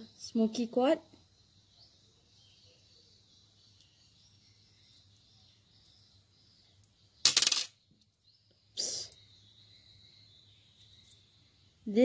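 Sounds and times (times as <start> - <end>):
stones clicking in a hand: 6.8 - 7.8.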